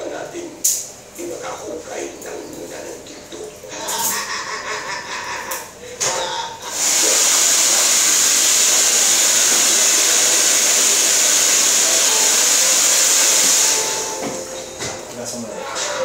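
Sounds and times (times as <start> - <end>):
hair dryer blowing: 6.6 - 15.0.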